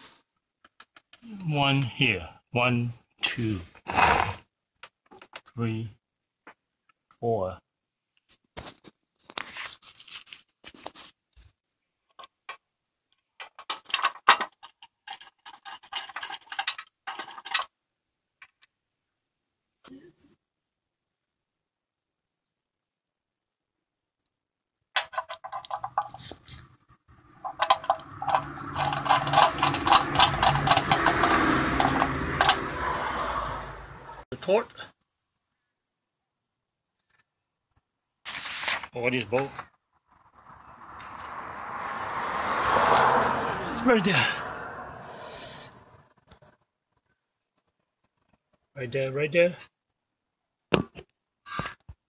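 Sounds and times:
socket scraping and clinking on metal: 0:13.4 - 0:17.7, 0:25.0 - 0:32.8.

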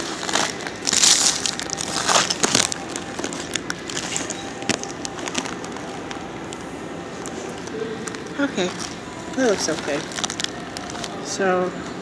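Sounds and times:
paper wrapper crinkling: 0:00.0 - 0:11.4.

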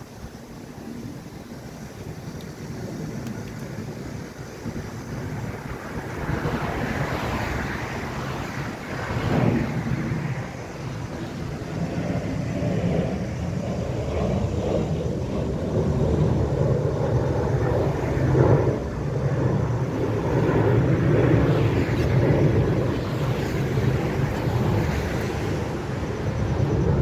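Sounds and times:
road traffic passing: 0:03.3 - 0:13.6, 0:17.4 - 0:27.0.

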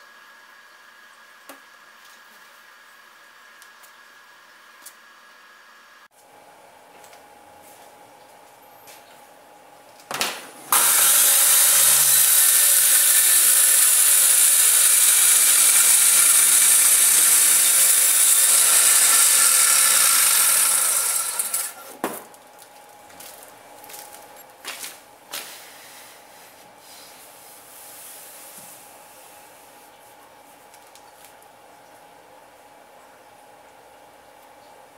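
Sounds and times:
circular saw cutting: 0:10.7 - 0:21.9.

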